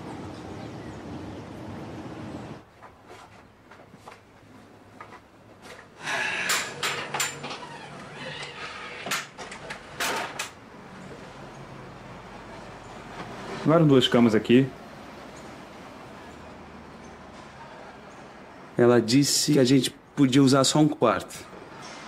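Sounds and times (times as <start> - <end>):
shutters knocking and rattling: 6.4 - 10.6.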